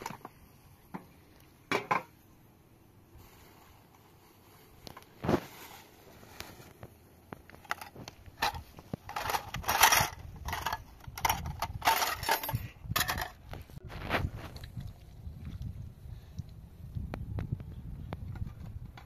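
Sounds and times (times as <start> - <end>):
small objects clattering: 7.4 - 13.8.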